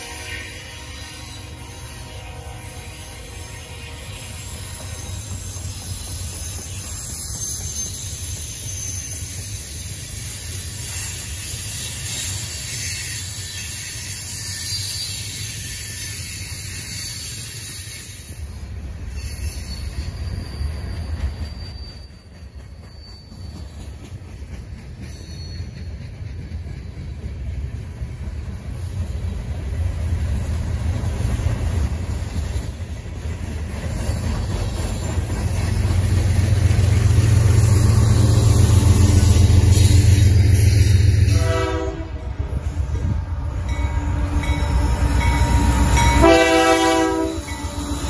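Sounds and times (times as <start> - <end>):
freight train rumbling on rails: 0.0 - 48.0
faint wheel squeals: 4.1 - 24.0.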